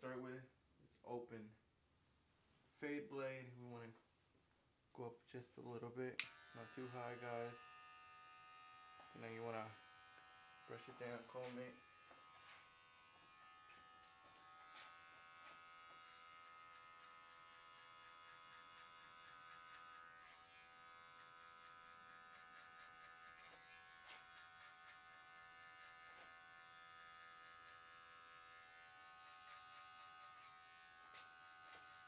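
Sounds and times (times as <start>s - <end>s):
electric hair clipper buzzing: 6.2s - 32.0s
light ticks of comb on hair: 8.8s - 32.0s.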